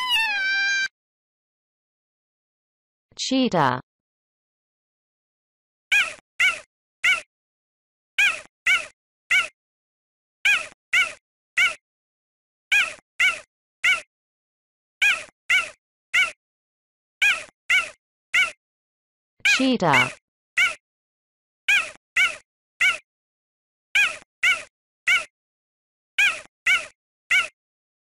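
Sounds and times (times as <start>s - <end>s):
cheetah calling: 0.0s - 0.9s.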